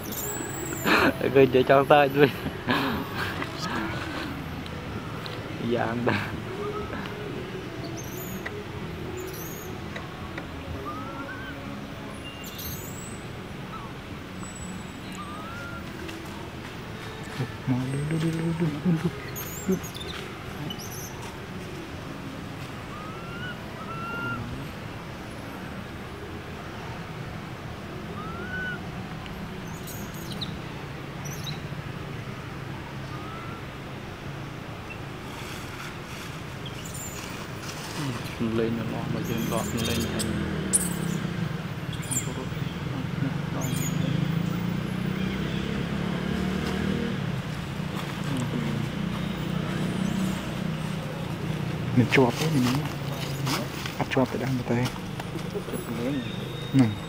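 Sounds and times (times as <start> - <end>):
birds chirping: 0.0 - 26.3, 28.0 - 35.6, 36.5 - 57.0
rising whistled bird notes: 10.8 - 15.9, 22.9 - 24.6, 28.2 - 28.8, 33.0 - 33.7.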